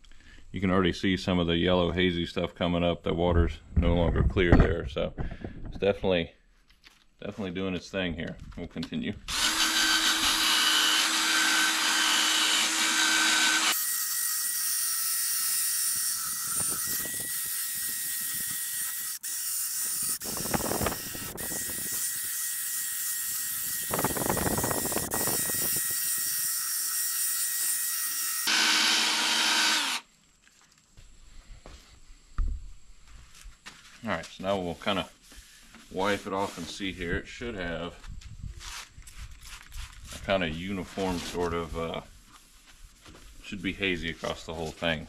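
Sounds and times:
cordless drill motor whine: 0:09.3 - 0:14.2, 0:15.3 - 0:26.9, 0:27.7 - 0:30.1
sanding disc on plastic lens: 0:11.9 - 0:28.7.

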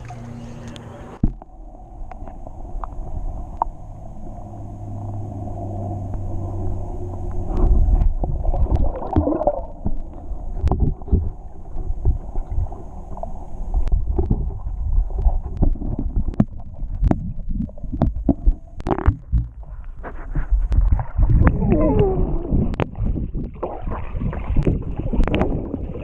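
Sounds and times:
steady low hum: 0:00.0 - 0:23.6
underwater sloshing and gurgling: 0:00.0 - 0:26.0
underwater knocks and thumps: 0:01.2 - 0:01.5, 0:07.3 - 0:12.8, 0:13.8 - 0:26.0.

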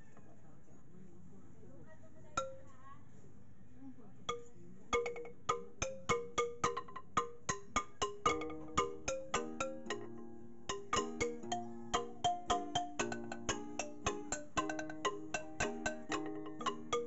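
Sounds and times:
wooden xylophone melody: 0:02.4 - 0:02.7, 0:04.3 - 0:17.0.

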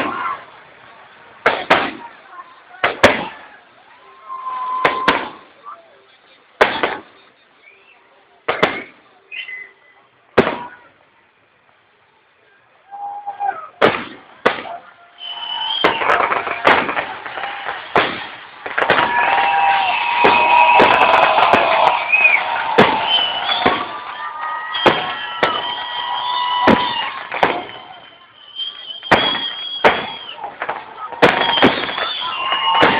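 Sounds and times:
fireworks bursting: 0:00.0 - 0:09.7, 0:10.3 - 0:10.9, 0:13.8 - 0:32.9
high whistling tones: 0:04.1 - 0:05.1, 0:15.2 - 0:16.2, 0:21.8 - 0:30.4, 0:31.3 - 0:32.9.

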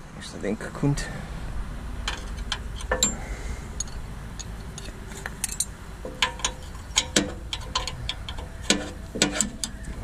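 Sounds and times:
light clinks and clicks: 0:02.1 - 0:03.2, 0:03.8 - 0:09.8.

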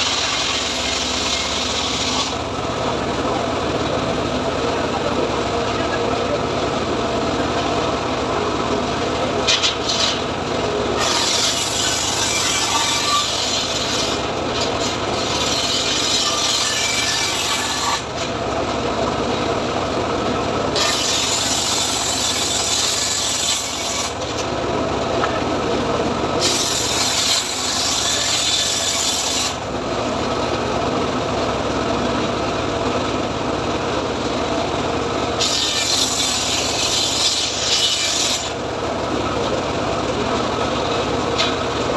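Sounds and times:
saw blade cutting wood hiss: 0:00.0 - 0:02.4, 0:11.0 - 0:18.1, 0:20.8 - 0:24.4, 0:26.4 - 0:29.6, 0:35.4 - 0:38.6
saw bench engine running: 0:00.0 - 0:41.9.

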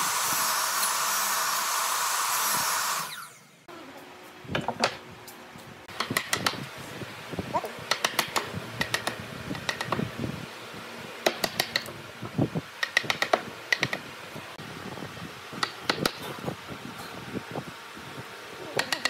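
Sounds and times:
chisel tapping into wood: 0:07.9 - 0:10.0, 0:11.2 - 0:11.9, 0:12.8 - 0:14.0.

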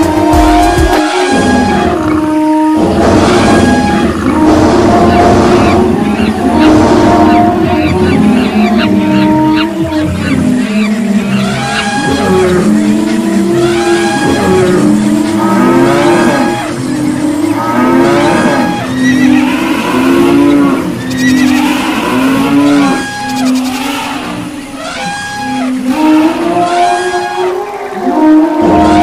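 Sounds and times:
animal calls: 0:00.0 - 0:29.0
repeating held pitched notes: 0:00.0 - 0:29.0.

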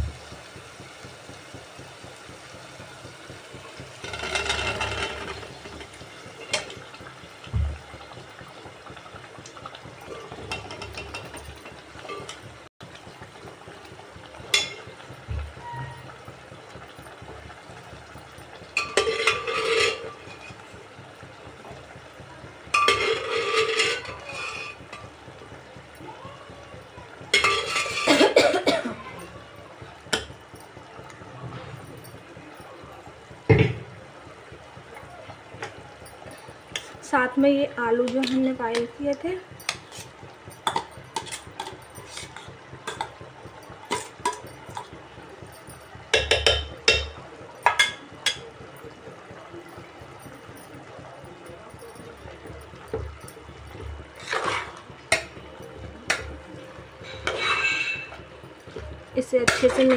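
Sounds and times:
ladle scraping metal pot: 0:04.0 - 0:06.9, 0:18.8 - 0:20.7, 0:22.7 - 0:25.2, 0:27.3 - 0:28.4, 0:39.6 - 0:43.2, 0:43.9 - 0:45.0, 0:53.7 - 0:59.9
spoon scraping a metal pot: 0:18.8 - 0:20.6, 0:22.8 - 0:24.9, 0:27.3 - 0:28.1, 0:40.7 - 0:43.1, 0:54.2 - 0:55.3, 0:57.0 - 0:58.2
spoon tapping on metal: 0:27.3 - 0:28.3, 0:39.6 - 0:44.9, 0:45.5 - 0:48.9, 0:49.7 - 0:59.9
metallic ring: 0:57.0 - 0:58.2.

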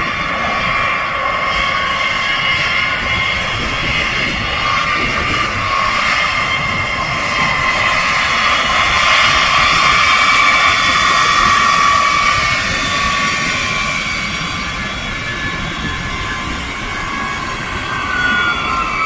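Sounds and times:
jet engines roaring with whine: 0:00.0 - 0:19.0.

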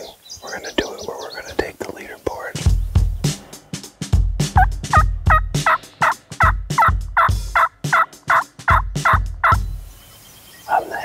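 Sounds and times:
wild turkey yelping: 0:04.6 - 0:09.6.

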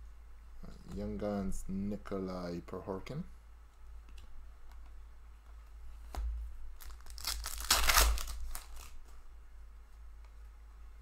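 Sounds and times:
foil wrapper tearing and crinkling: 0:06.8 - 0:09.0.

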